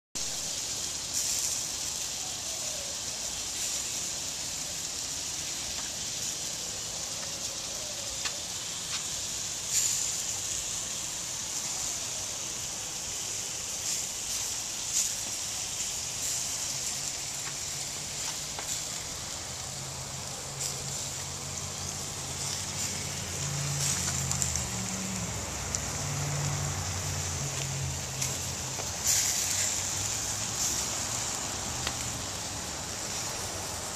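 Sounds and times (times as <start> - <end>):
meat sizzling on a grill: 0.2 - 33.9
fat popping and crackling: 16.4 - 19.6, 20.6 - 30.6.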